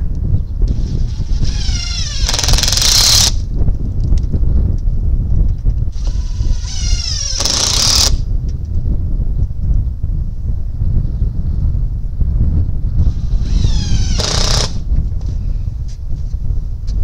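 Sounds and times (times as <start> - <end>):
wind rumble on microphone: 0.0 - 17.0
impact driver driving screws: 0.7 - 3.4, 6.0 - 8.2, 13.1 - 14.8.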